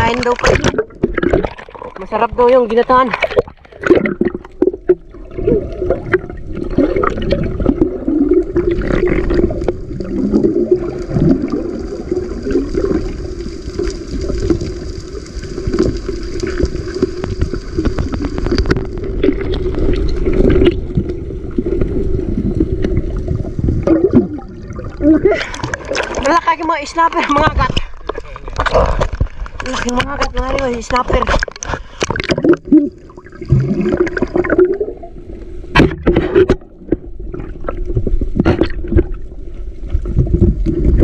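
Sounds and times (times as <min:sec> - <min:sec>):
underwater gurgling rush: 0:00.0 - 0:41.0
small underwater knocks: 0:35.7 - 0:37.1.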